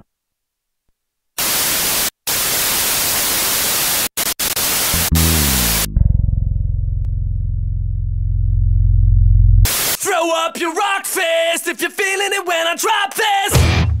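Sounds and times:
loud static hiss: 0:01.4 - 0:05.9, 0:09.7 - 0:10.0
low pulsing electric buzz: 0:04.9 - 0:09.7
falling tone: 0:05.0 - 0:09.7.

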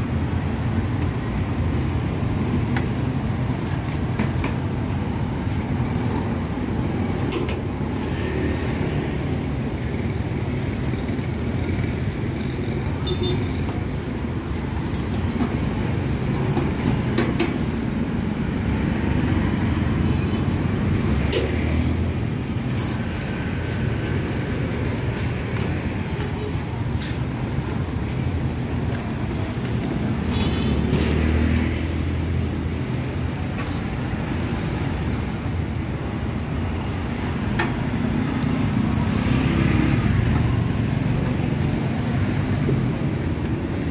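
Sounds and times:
road traffic rumble: 0:00.0 - 0:43.9
sharp clicks and knocks: 0:14.8 - 0:17.7.

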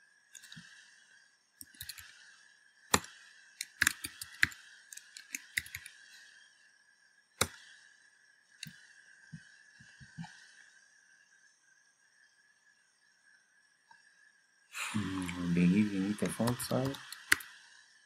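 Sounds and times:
faint high whine: 0:00.0 - 0:18.0
keyboard key clicks: 0:02.9 - 0:05.9.

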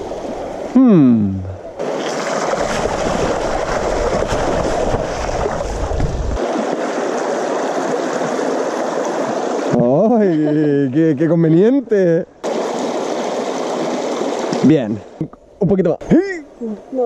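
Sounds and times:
rocky stream rushing: 0:01.7 - 0:10.6, 0:12.4 - 0:14.8
wind rumble on microphone: 0:02.6 - 0:06.4.

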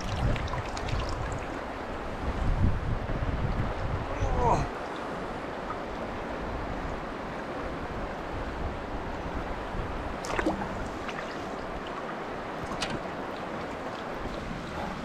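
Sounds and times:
small splashes: 0:00.0 - 0:01.7, 0:10.2 - 0:15.0
river water over rocks: 0:00.0 - 0:15.0.

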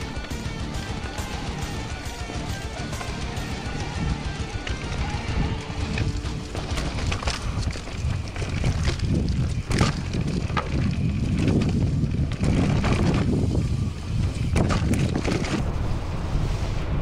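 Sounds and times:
bike clicks and rattles: 0:00.0 - 0:15.6
bike tyre noise: 0:00.0 - 0:17.0
wind buffeting microphone: 0:03.9 - 0:17.0.

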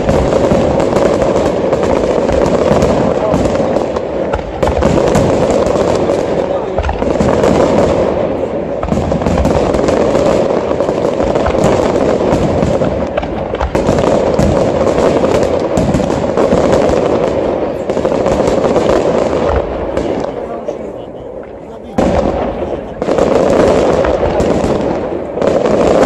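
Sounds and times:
fireworks bursting and crackling: 0:00.0 - 0:26.0
sharp firework reports: 0:00.0 - 0:26.0.

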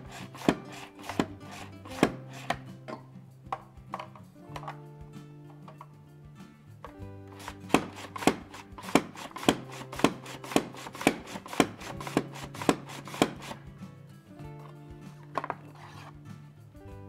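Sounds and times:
mandoline slicer clacking: 0:00.0 - 0:02.6, 0:07.4 - 0:13.6.

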